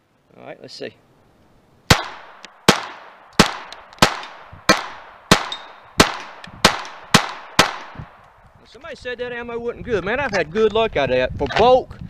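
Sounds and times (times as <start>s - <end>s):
pistol shots with ringing tail: 1.9s - 8.2s.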